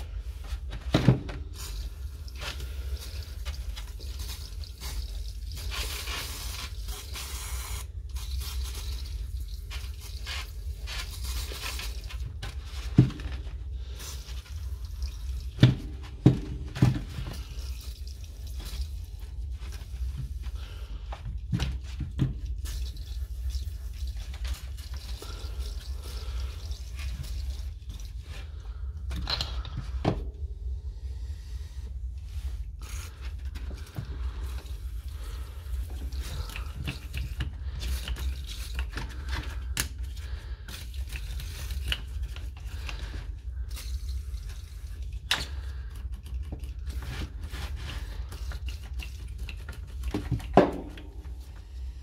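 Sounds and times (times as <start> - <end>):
plastic and metal parts handled: 32.8 - 51.6.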